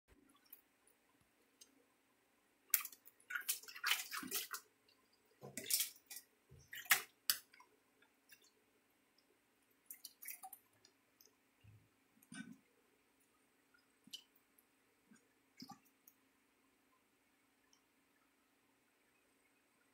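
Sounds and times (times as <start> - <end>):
hands splashing water in metal bowl: 2.7 - 4.7, 5.4 - 7.7, 9.9 - 10.7.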